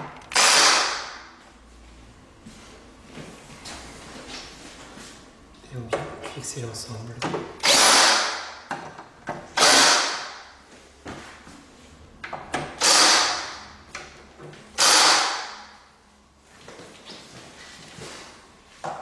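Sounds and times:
cordless drill driving screws: 0:00.3 - 0:01.0, 0:07.6 - 0:08.4, 0:09.6 - 0:10.2, 0:12.8 - 0:13.4, 0:14.8 - 0:15.5.

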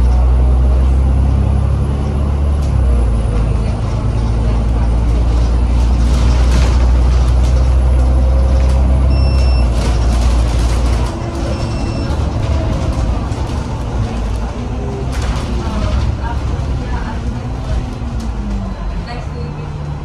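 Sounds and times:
bus diesel engine drone: 0:00.0 - 0:20.0
road noise: 0:00.0 - 0:20.0
short electronic beep: 0:09.1 - 0:09.8, 0:11.5 - 0:12.1.

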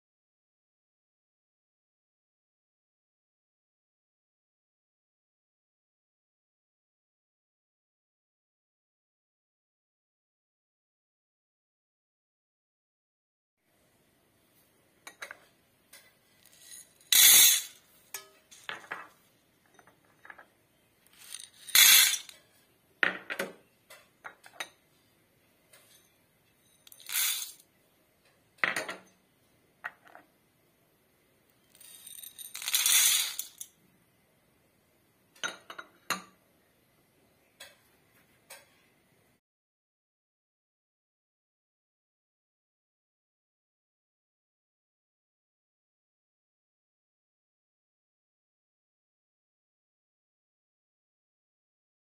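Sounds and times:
dry beans pouring into steel bowl: 0:16.4 - 0:17.8, 0:21.2 - 0:22.4, 0:26.9 - 0:27.6, 0:31.8 - 0:33.6
glass clinking: 0:18.1 - 0:19.1, 0:35.4 - 0:36.4.

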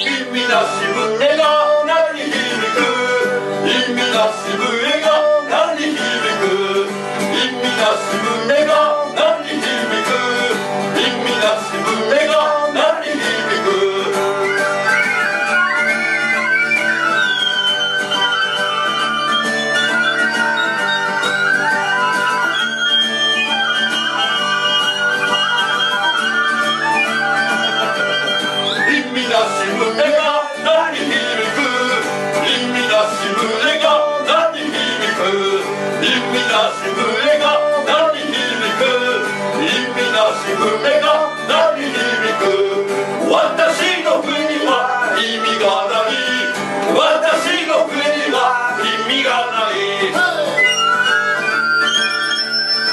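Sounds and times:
men singing: 0:00.0 - 0:14.7, 0:28.8 - 0:50.6
guitar: 0:00.0 - 0:52.9
harmonica: 0:00.0 - 0:52.9
live band playing: 0:00.0 - 0:52.9
shrill wind instrument melody: 0:00.0 - 0:52.9.

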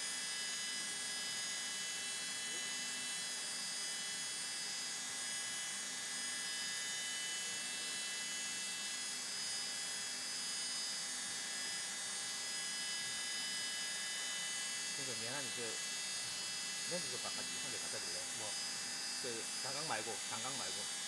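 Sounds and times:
high-pitched spindle whine: 0:15.0 - 0:21.0.

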